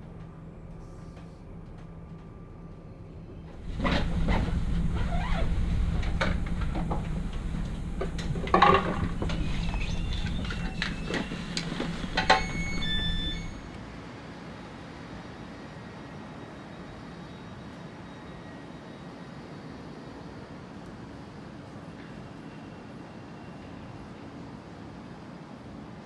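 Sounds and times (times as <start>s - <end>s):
train rolling on rails: 0.0s - 26.0s
high squeals: 9.0s - 13.8s.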